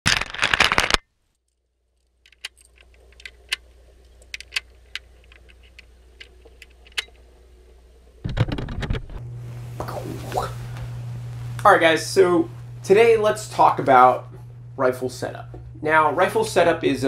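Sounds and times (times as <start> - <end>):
metallic clicks and rattles: 0.1 - 7.2
faint low hum: 1.6 - 17.0.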